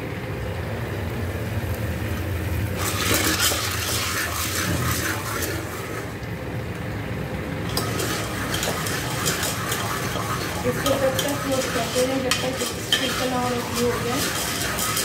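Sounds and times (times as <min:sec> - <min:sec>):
popcorn kernels rattling and sizzling: 0:02.7 - 0:15.0
ladle scraping pot: 0:02.8 - 0:06.2, 0:07.6 - 0:15.0.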